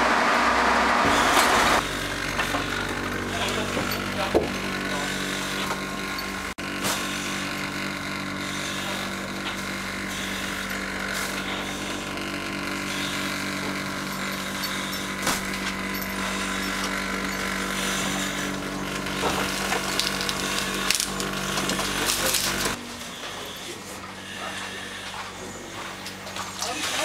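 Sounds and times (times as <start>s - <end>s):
ventilation fan engine drone: 0.0s - 27.0s.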